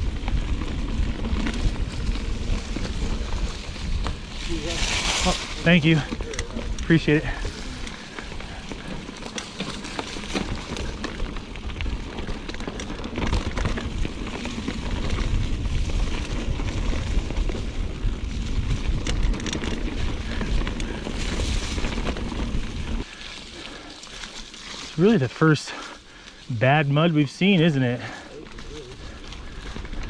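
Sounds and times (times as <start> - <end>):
wind buffeting microphone: 0.0 - 23.9
mountain bike rattling on dirt trail: 0.0 - 30.0.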